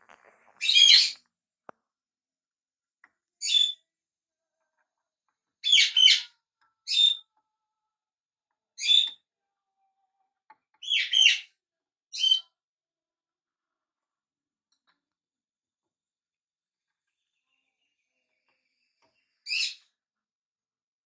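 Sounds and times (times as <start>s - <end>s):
small bird chirping: 0.1s - 1.3s, 3.4s - 3.9s, 5.6s - 7.4s, 8.8s - 9.9s, 10.7s - 12.6s, 16.8s - 20.0s.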